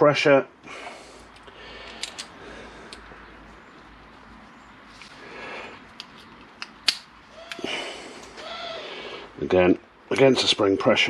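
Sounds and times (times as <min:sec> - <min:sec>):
metal parts rustling: 0:01.8 - 0:02.4
sharp metal clicks: 0:06.0 - 0:07.6.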